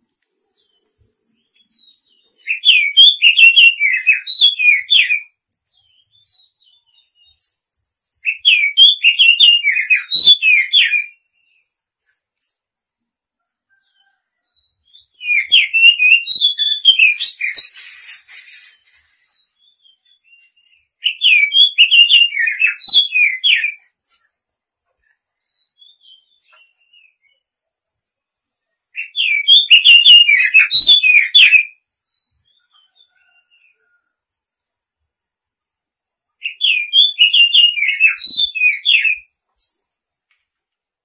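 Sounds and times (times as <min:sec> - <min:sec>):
bird singing whistled notes: 0:00.5 - 0:07.4, 0:08.2 - 0:11.7, 0:13.8 - 0:23.9, 0:25.4 - 0:27.4, 0:29.0 - 0:33.9, 0:36.4 - 0:39.3.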